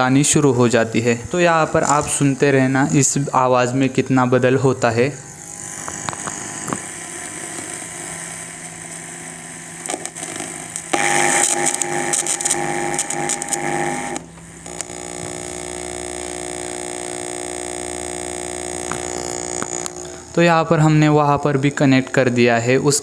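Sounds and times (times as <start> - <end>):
electrical buzz and whine: 0.0 - 23.0
crackles: 5.5 - 23.0.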